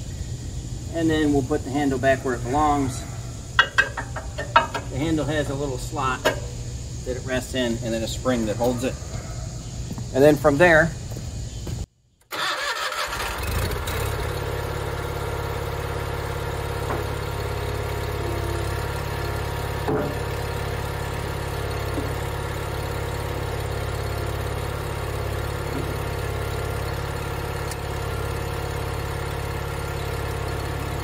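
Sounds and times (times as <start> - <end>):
tractor engine idling: 0.0 - 11.2, 12.3 - 31.0
loader bucket clunk: 2.4 - 6.9, 14.9 - 31.0.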